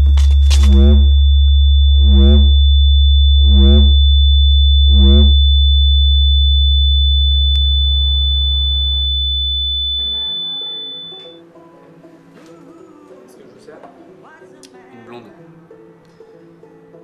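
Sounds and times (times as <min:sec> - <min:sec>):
loud low electronic drone: 0:00.0 - 0:11.4
pitched electronic pulse: 0:00.0 - 0:11.4
thin high tone: 0:00.0 - 0:11.4.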